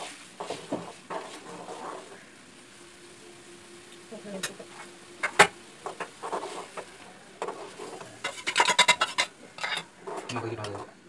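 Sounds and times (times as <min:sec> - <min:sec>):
metal utensils scraping steel pan: 0:07.4 - 0:10.9.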